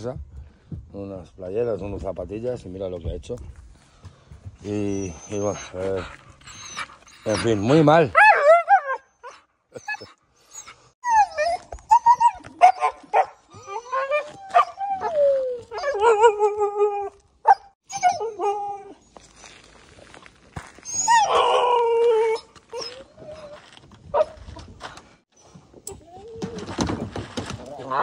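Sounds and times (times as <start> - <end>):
puppies whining and howling: 4.7 - 19.6, 20.8 - 24.4
puppies yipping: 4.9 - 16.5.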